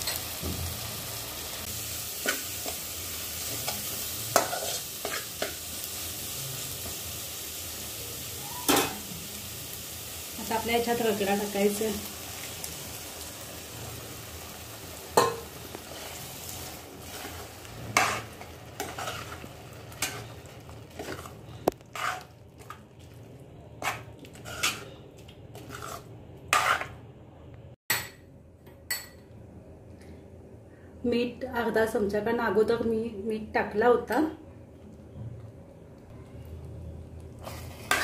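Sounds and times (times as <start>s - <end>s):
masala sizzling in a pan: 0.0s - 27.0s, 36.0s - 38.0s
spoon knocking and scraping pan: 3.5s - 5.6s, 15.2s - 16.1s, 17.1s - 20.3s, 20.9s - 22.8s, 23.8s - 27.0s.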